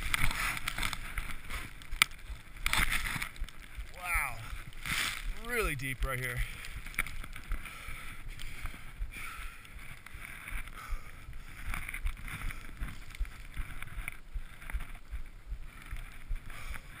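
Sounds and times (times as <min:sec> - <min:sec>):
skis swishing through snow: 0:04.7 - 0:06.8.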